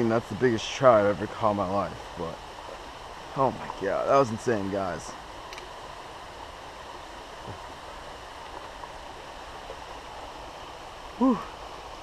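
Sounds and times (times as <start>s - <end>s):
creek water running over rocks: 0.0s - 12.0s.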